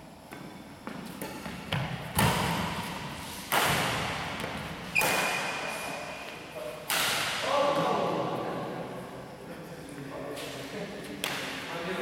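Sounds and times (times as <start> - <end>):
rackets striking shuttlecock: 3.5 - 5.6, 6.8 - 7.4.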